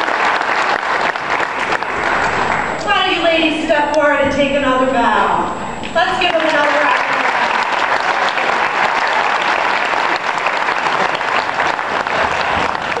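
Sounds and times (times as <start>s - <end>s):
audience applauding: 0.0s - 2.8s, 6.2s - 13.0s.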